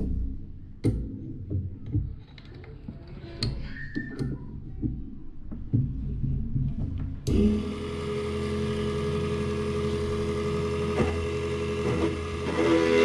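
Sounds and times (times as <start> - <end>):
electric motor humming: 7.3 - 13.0.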